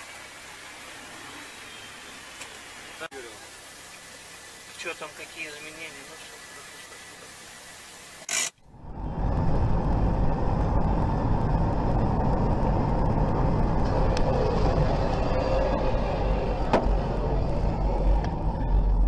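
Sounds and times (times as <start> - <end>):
car road and engine noise: 5.8 - 19.0.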